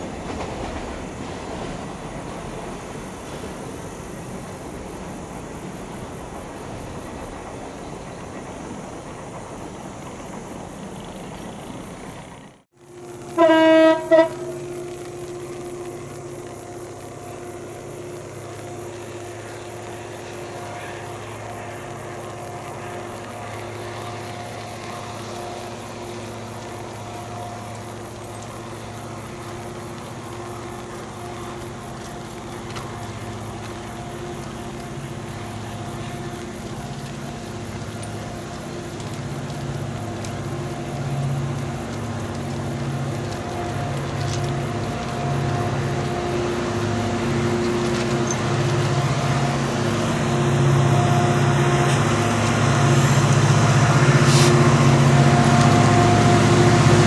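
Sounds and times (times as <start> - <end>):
diesel locomotive running: 0.0 - 57.0
locomotive air horn blasts: 13.2 - 16.0, 43.4 - 57.0.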